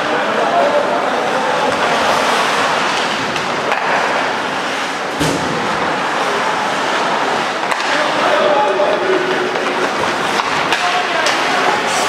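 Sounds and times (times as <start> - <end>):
skates scraping ice: 0.0 - 12.0.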